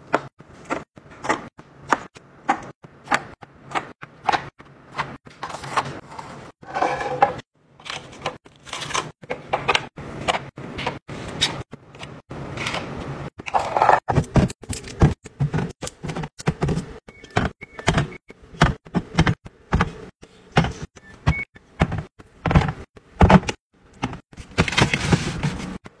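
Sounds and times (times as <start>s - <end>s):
scraping sound: 6.0s - 7.4s
plastic cups pushed into bin: 21.8s - 25.8s.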